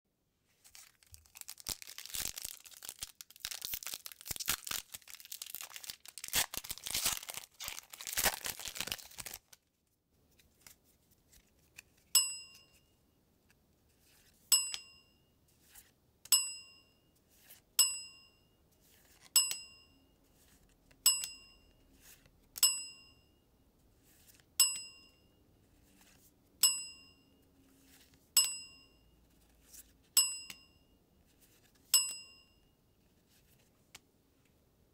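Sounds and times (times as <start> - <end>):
foil wrapper tearing and crinkling: 0.6 - 9.6.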